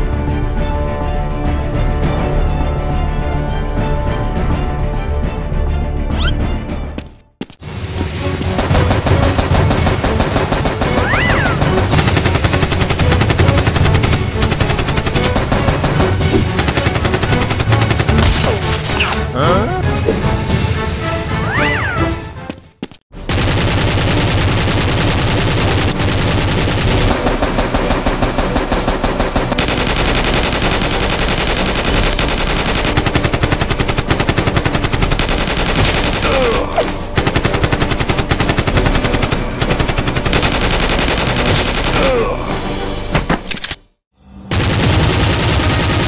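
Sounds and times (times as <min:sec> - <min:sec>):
rapid machine-gun fire: 0:08.6 - 0:18.4, 0:23.2 - 0:42.3, 0:44.5 - 0:46.0.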